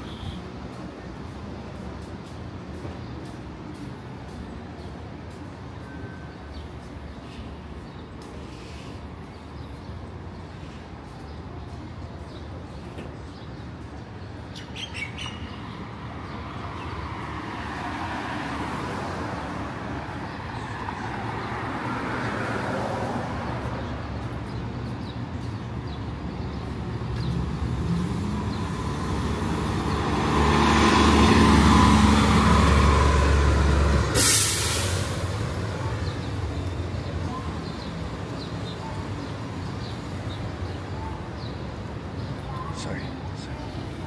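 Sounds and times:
city street traffic: 0.0 - 44.0
heavy vehicle engine passing: 27.2 - 38.3.

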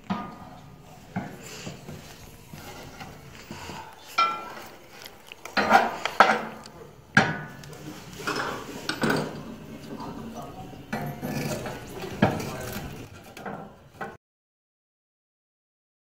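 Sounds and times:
metal fireplace tools clinking: 0.0 - 7.3, 10.9 - 13.6.

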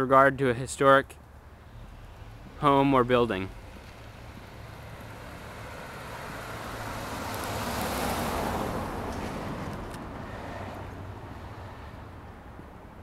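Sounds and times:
car driving past: 3.5 - 12.2.

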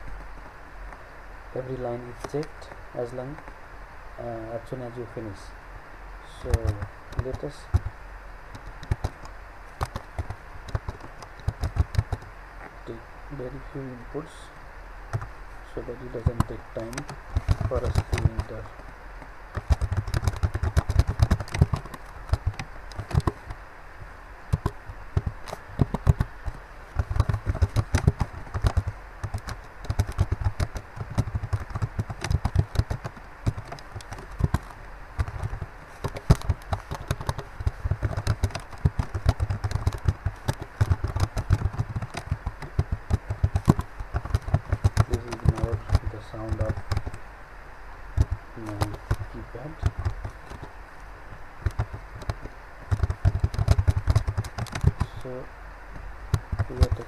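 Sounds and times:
typing on computer keyboard: 6.4 - 7.9, 8.5 - 12.3, 15.1 - 15.3, 16.1 - 18.8, 19.5 - 23.6, 24.5 - 47.2, 48.2 - 50.7, 51.6 - 55.3, 56.3 - 57.0.

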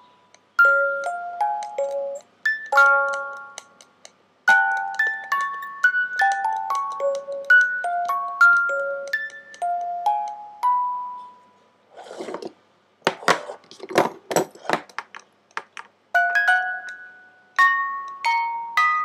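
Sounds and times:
music box plinking: 0.0 - 11.5, 16.2 - 19.0
metallic clicks and knocks: 13.1 - 15.9.

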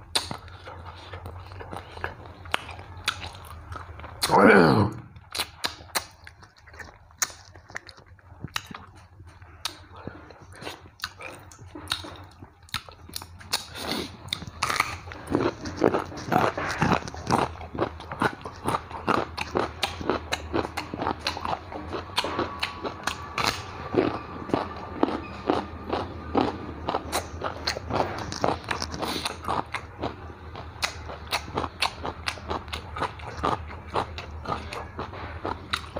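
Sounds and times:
chewing with light clicking: 0.0 - 4.3, 5.1 - 35.9
carrot crunching: 5.3 - 35.9.

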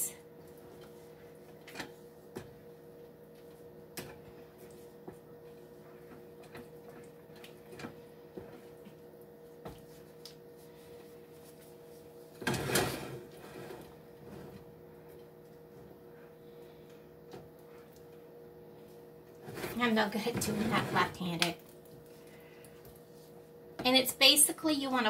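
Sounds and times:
steady low hum: 0.0 - 25.0
wooden spatula scraping a pan: 19.4 - 21.3.

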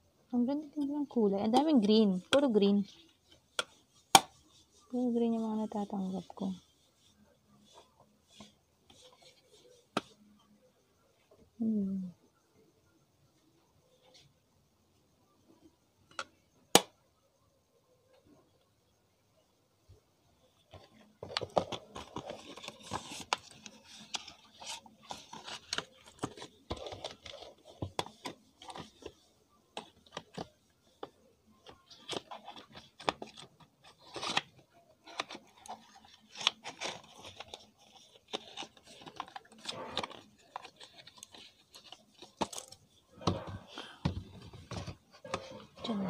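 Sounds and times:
paper packaging rustling: 21.1 - 29.2, 31.6 - 46.0.

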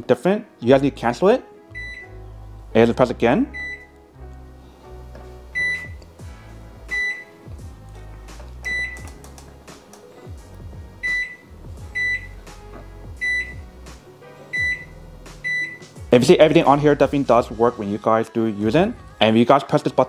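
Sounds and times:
background music: 0.0 - 20.0
microwave keypad beeps: 1.8 - 2.2, 3.6 - 3.9, 5.6 - 6.0, 6.9 - 7.3, 8.7 - 9.1, 11.0 - 12.4, 13.2 - 13.6, 14.5 - 16.0.

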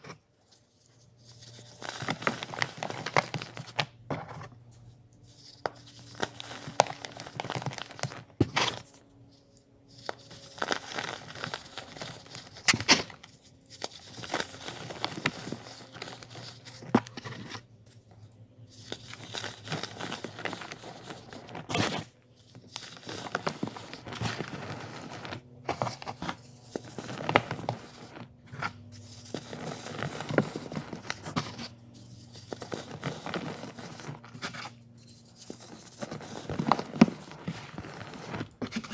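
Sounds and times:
crunchy crackling of crumbling blocks: 0.0 - 18.0, 18.7 - 38.9.

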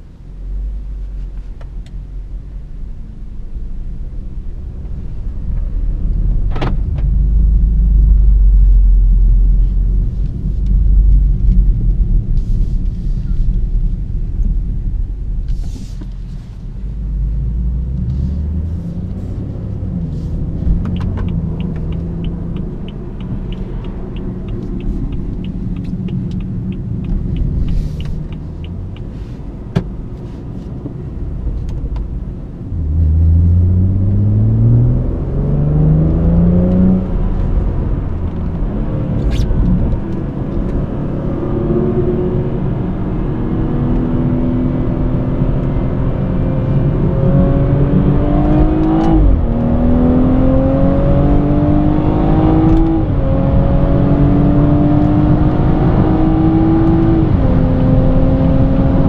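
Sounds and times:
car engine and road rumble: 0.0 - 59.0
turn signal ticking: 19.1 - 30.2.

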